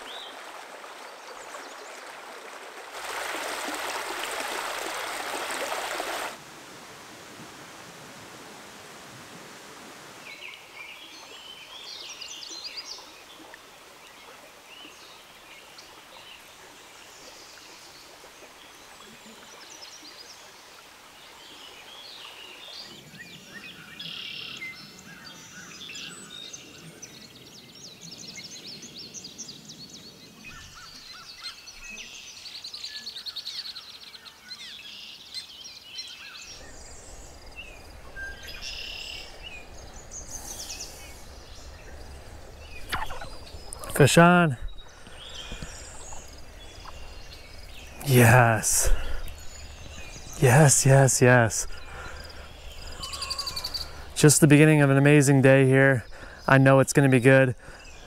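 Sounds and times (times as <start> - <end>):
songbirds chirping and trilling: 10.2 - 58.0
low outdoor rushing noise: 36.5 - 58.0.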